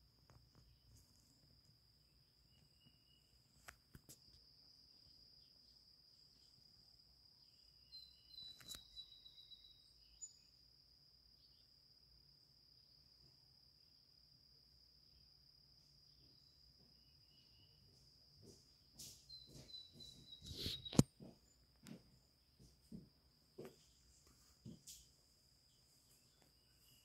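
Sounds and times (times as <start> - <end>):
high-pitched insect trill: 1.6 - 21.0, 24.8 - 27.0
bird call: 19.0 - 21.1.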